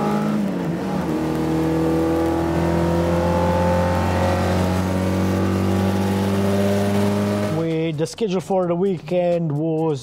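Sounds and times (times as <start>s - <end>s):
racing car engine accelerating: 0.0s - 7.8s.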